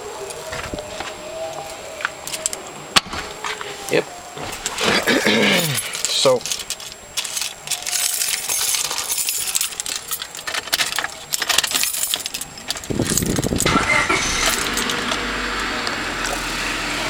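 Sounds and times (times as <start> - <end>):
keys rattling in ignition: 1.4 - 2.6, 4.4 - 16.5
car engine starting and idling: 12.2 - 17.0.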